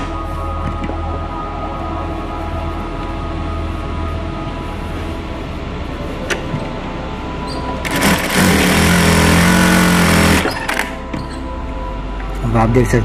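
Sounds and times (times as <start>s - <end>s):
sewing machine stitching: 7.8s - 10.8s.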